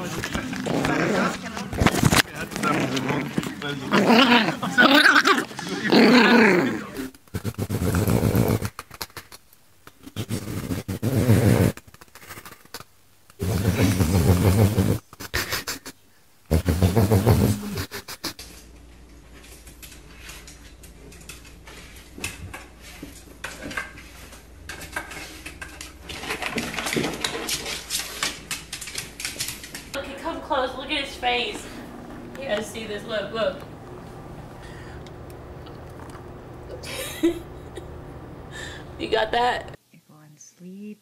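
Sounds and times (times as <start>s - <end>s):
dog growling in play: 0.0s - 8.8s, 13.4s - 15.0s.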